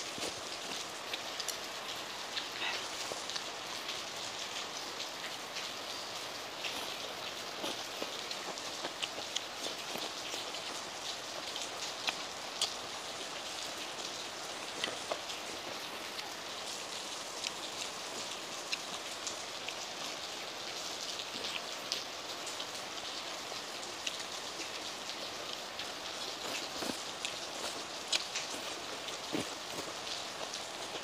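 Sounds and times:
heavy rain falling: 0:00.0 - 0:31.0.

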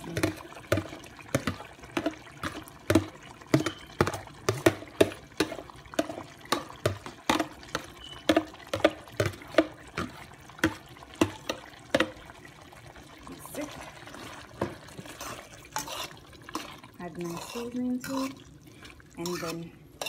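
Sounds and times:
curry popping and plopping: 0:00.0 - 0:17.0.

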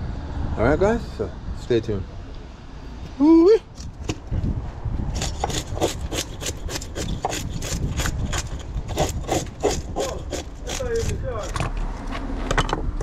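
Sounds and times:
fish scaler scraping scales: 0:05.1 - 0:11.6.

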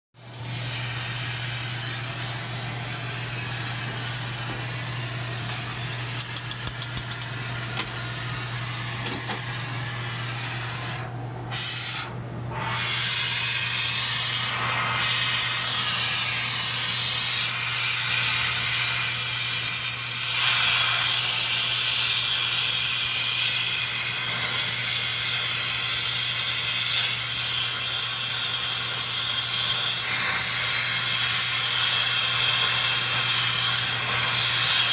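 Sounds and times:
gas torch flame hissing: 0:00.2 - 0:34.9
quick run of clicks: 0:05.6 - 0:07.3.

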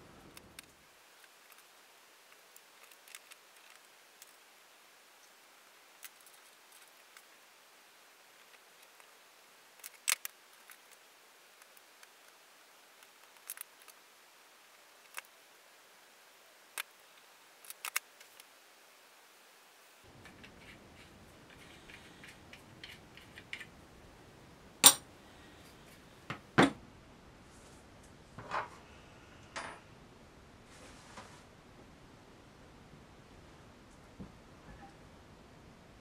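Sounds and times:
small metal parts clicking: 0:20.2 - 0:23.7, 0:24.8 - 0:25.0.

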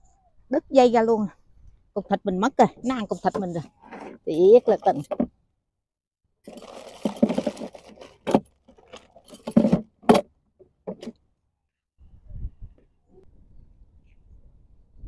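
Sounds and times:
rustling and scraping: 0:02.8 - 0:05.2, 0:06.5 - 0:11.2.

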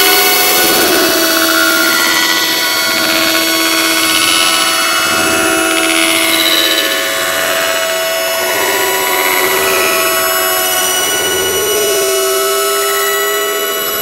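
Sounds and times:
dense drone of held tones: 0:00.0 - 0:14.0.

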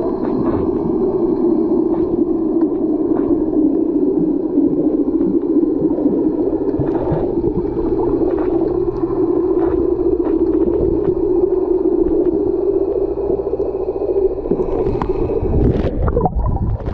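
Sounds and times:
muffled underwater rumble: 0:00.0 - 0:16.9.

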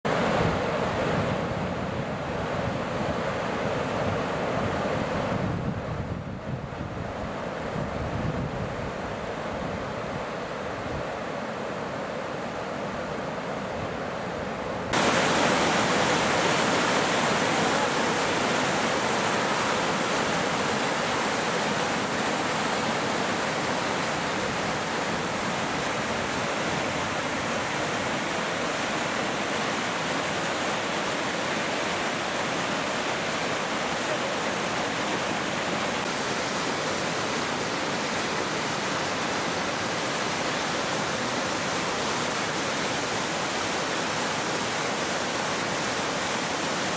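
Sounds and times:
river water rushing through rapids: 0:00.1 - 0:05.5, 0:06.8 - 0:46.9.

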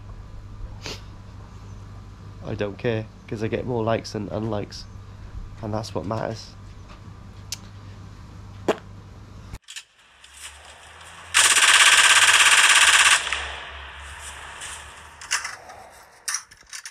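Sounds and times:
low garden ambience hum: 0:00.0 - 0:16.9
fast rattle of sharp clicks: 0:09.6 - 0:16.9.

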